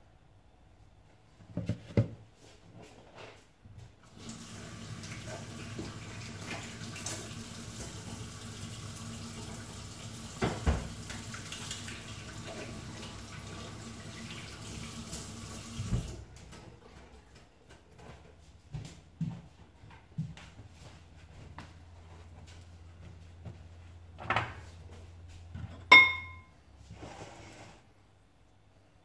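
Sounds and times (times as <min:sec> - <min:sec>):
object knocking in sink: 0:10.4 - 0:10.9
tap running into a steel sink: 0:10.4 - 0:11.2.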